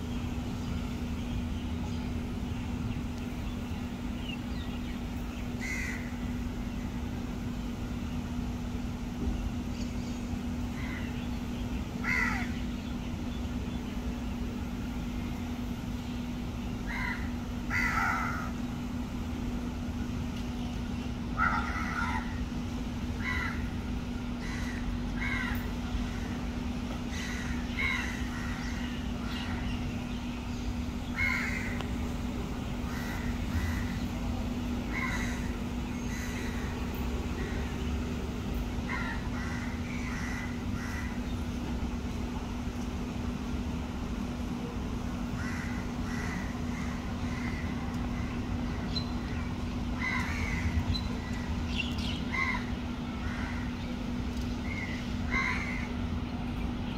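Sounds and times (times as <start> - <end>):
steady low hum: 0.0 - 56.9
crows cawing: 5.6 - 6.2, 10.7 - 11.1, 12.0 - 12.6, 16.9 - 18.6, 21.4 - 22.5, 23.2 - 26.4, 27.1 - 29.6, 31.1 - 31.8, 32.8 - 34.1, 34.9 - 36.8, 38.8 - 41.3, 45.3 - 48.4, 50.0 - 51.5, 52.3 - 53.8, 54.7 - 56.0.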